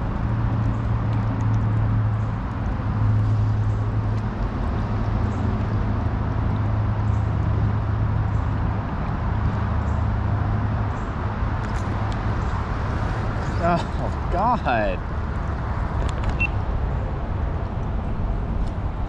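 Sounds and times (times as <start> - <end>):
creek water rushing: 11.5 - 16.0.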